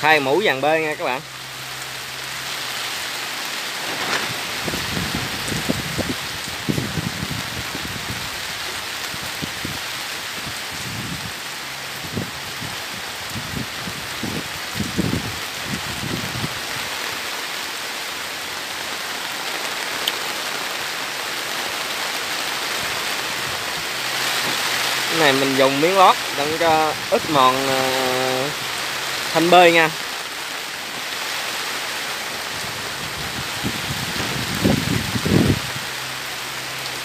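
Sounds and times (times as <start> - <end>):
steady background hiss: 16.9 - 32.9.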